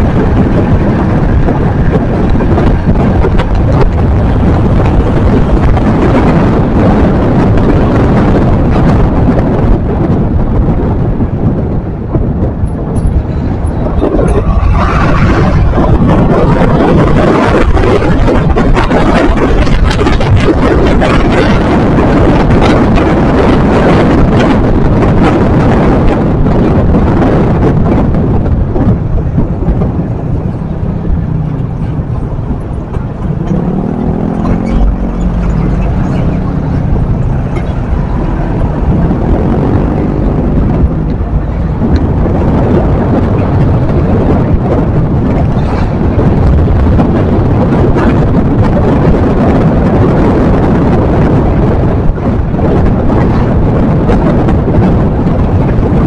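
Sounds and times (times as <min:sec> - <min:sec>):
wind rushing over microphone: 0:00.0 - 0:56.0
vehicle engine running: 0:27.8 - 0:48.4.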